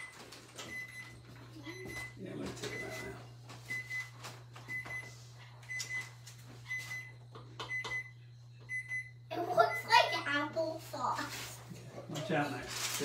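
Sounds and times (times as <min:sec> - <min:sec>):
timer beeping: 0:00.0 - 0:04.1, 0:06.7 - 0:10.3.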